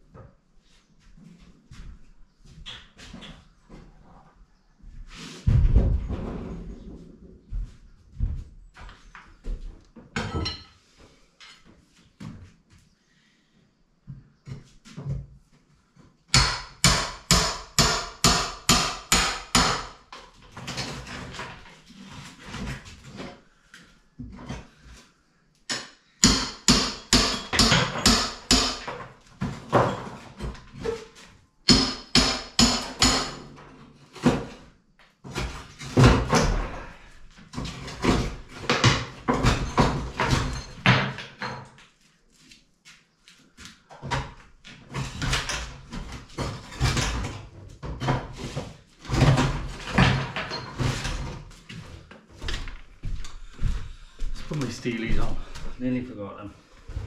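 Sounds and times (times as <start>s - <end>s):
hammer pounding plaster wall: 16.3s - 23.3s, 25.7s - 41.7s, 44.0s - 52.5s.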